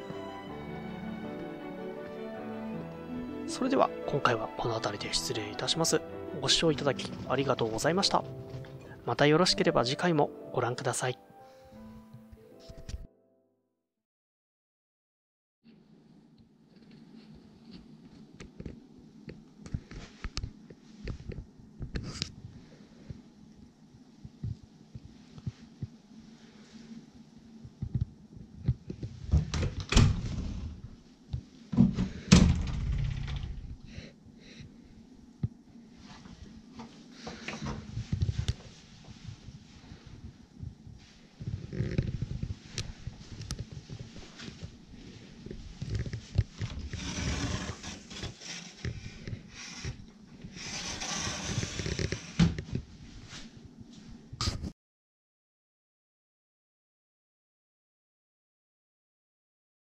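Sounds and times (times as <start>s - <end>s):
sliding door rumbling in track: 50.6s - 52.4s.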